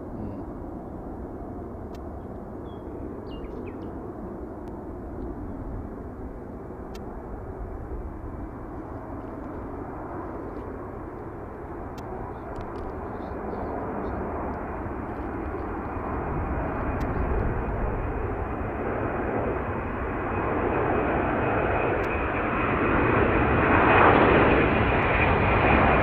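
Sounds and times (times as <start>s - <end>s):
distant jet engines rumbling: 0.0s - 26.0s
bird chirping: 2.6s - 3.9s.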